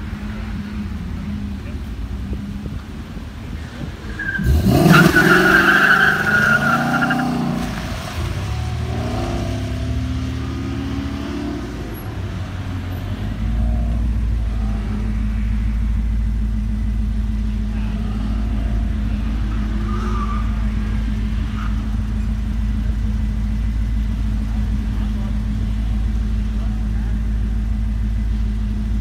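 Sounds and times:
car engine revving: 0.0 - 29.0
tyres squealing: 4.0 - 10.8, 17.6 - 22.5.

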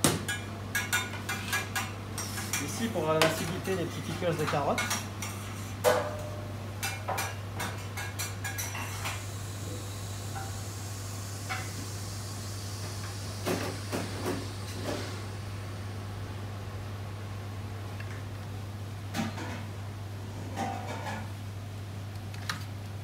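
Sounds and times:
utensils clinking on metal counter: 0.3 - 9.1.

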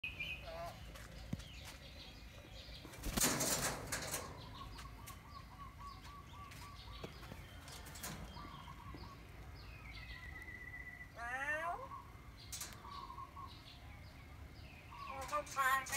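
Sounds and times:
bird wings flapping: 2.9 - 4.3.

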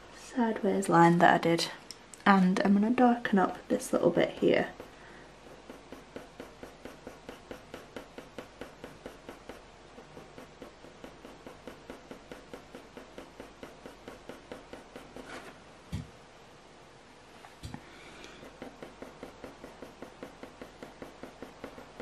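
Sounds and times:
pencil scratching on paper: 4.0 - 15.6, 18.1 - 22.0.

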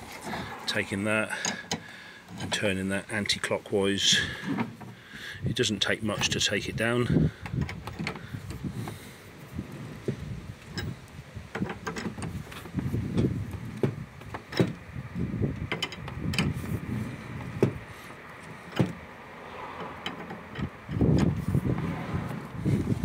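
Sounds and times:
winch crank clicking and clunking: 1.2 - 3.4, 7.0 - 21.6.

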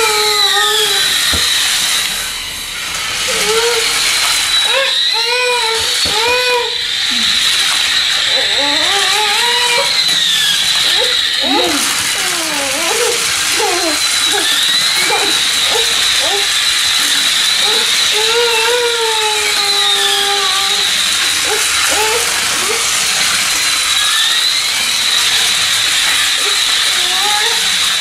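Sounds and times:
loud hiss: 0.0 - 5.2
toy motor whining: 0.0 - 28.0
warbling tones: 7.1 - 27.4.

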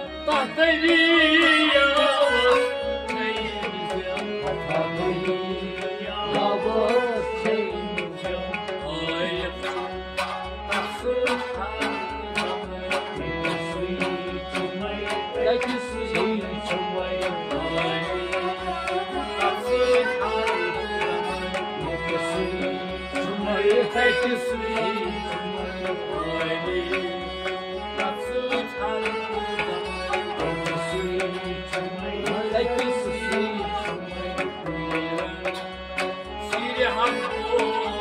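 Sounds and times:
tabla steady beat: 0.0 - 38.0.

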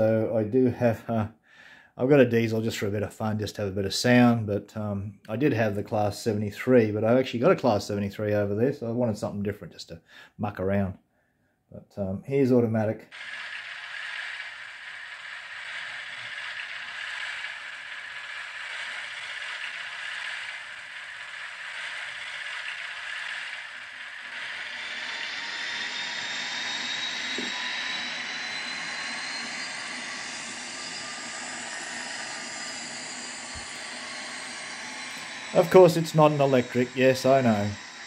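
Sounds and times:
diesel engine sound from small speaker: 13.1 - 38.0
faint rising whine: 13.1 - 38.0.

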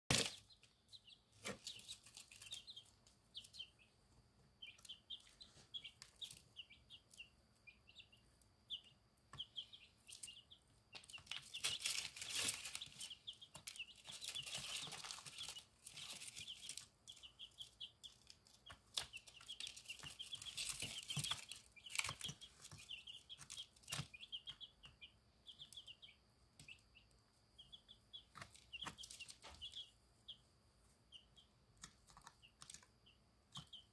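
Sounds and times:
chicks peeping: 0.1 - 33.9
rustling: 11.0 - 24.2.

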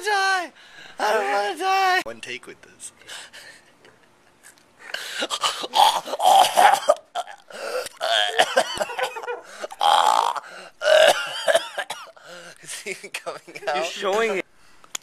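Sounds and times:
man making choking cries: 5.0 - 12.4.

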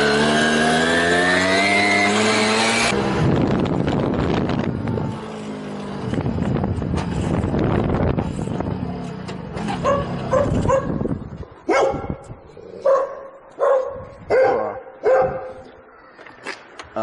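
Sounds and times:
two-stroke moped engine running: 3.0 - 11.4
dog barking: 9.8 - 11.0, 11.7 - 12.2, 12.8 - 15.8.

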